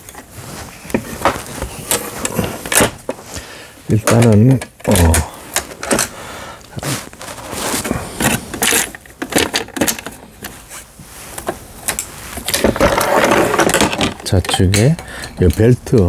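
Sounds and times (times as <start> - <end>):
plastic and metal parts clicking: 4.0 - 6.1, 8.2 - 10.6.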